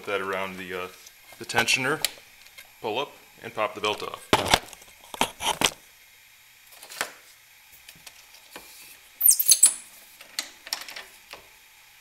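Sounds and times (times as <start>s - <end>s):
rubber belt squeaking: 9.2s - 9.8s.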